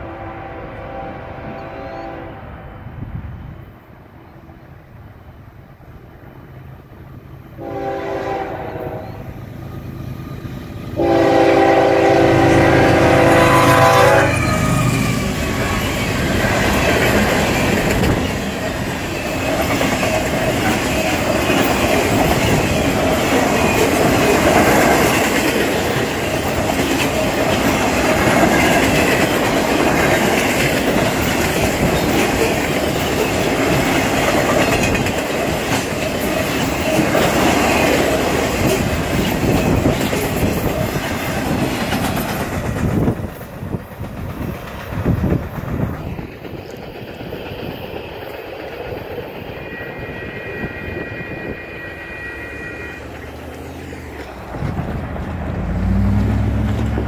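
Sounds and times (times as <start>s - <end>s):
train wheels rumbling on rails: 3.0s - 57.0s
clickety-clack over rail joints: 14.8s - 50.3s, 53.0s - 57.0s.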